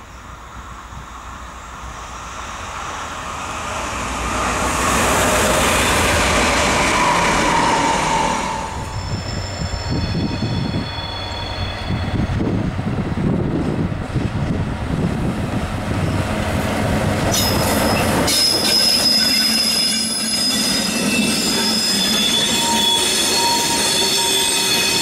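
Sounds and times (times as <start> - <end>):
diesel locomotive engine rumbling: 0.0 - 25.0
train passing at speed: 0.0 - 25.0
high-pitched wheel squeal: 5.8 - 12.4, 17.4 - 25.0.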